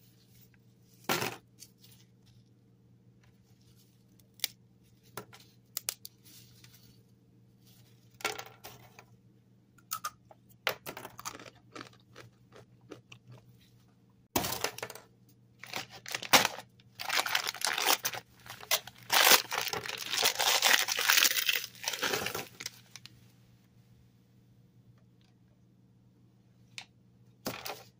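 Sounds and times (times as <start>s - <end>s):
chips crunching on wooden table: 10.8s - 13.4s, 15.7s - 22.6s
tortilla chips snapping: 18.7s - 22.1s.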